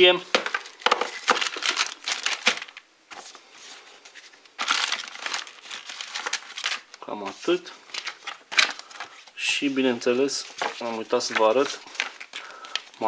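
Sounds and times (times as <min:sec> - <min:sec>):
plastic bag crinkling: 0:00.0 - 0:02.8, 0:04.2 - 0:07.1, 0:07.8 - 0:09.4, 0:10.1 - 0:13.0.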